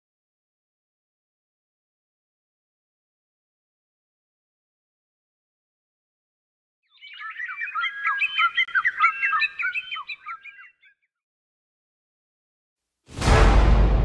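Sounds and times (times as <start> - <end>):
small birds chirping: 6.8 - 11.2.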